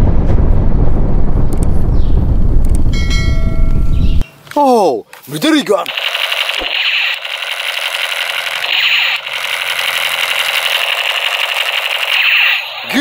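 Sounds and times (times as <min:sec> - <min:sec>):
toy machine gun rattle: 0:05.8 - 0:13.0.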